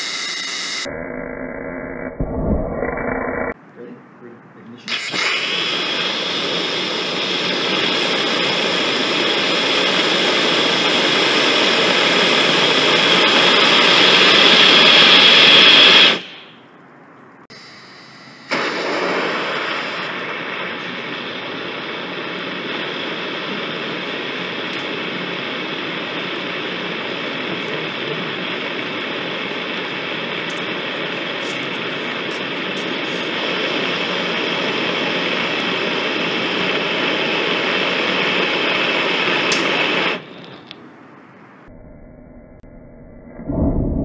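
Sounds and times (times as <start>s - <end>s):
rocket exhaust crackles: 4.9s - 16.6s, 18.5s - 40.9s
rocket motor rushing hiss: 4.9s - 16.6s, 18.4s - 40.4s.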